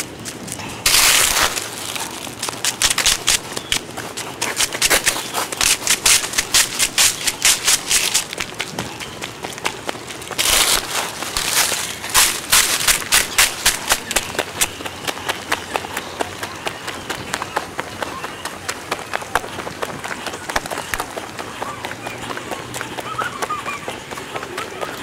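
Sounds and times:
leaves rustling: 0.0s - 14.9s
running footsteps on dry leaves: 0.0s - 25.0s.

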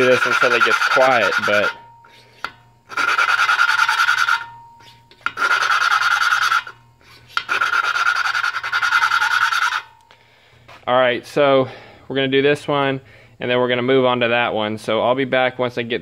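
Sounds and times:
grinding compound rasping: 0.0s - 9.9s
lapping stick spinning: 0.0s - 9.9s.

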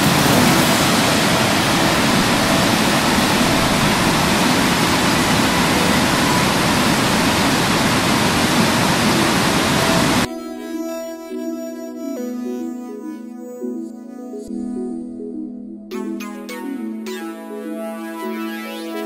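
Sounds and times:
waterfall rushing: 0.0s - 10.3s.

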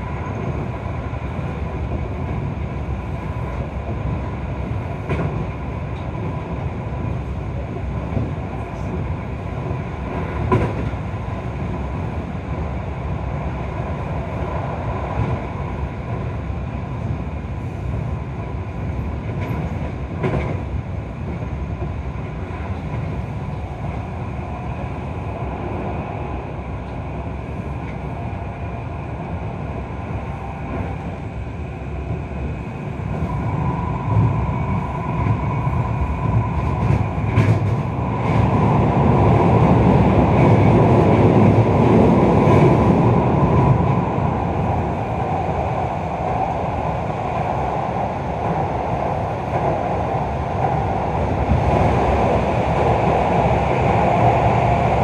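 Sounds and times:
train rolling rumble: 0.0s - 55.0s
wheels clacking at rail joints: 10.1s - 11.0s, 19.0s - 20.7s, 36.6s - 38.7s.

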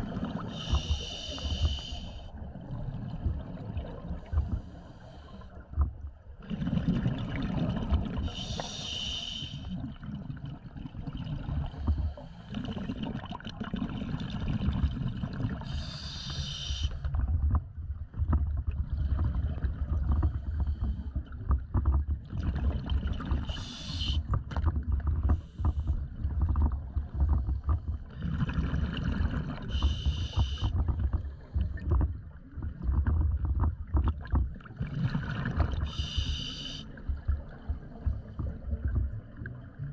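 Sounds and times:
hissing inhalations: 0.6s - 2.2s, 8.3s - 9.7s, 15.7s - 17.0s, 23.5s - 24.2s, 29.7s - 30.7s, 35.9s - 36.9s
bubbly exhalations underwater: 6.4s - 8.5s, 9.7s - 11.9s, 12.5s - 15.9s, 22.2s - 39.9s.

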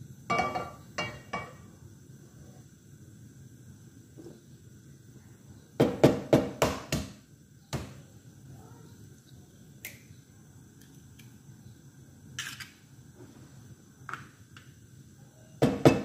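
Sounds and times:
object knocking on kitchen surface: 5.8s - 8.0s, 15.6s - 16.0s.

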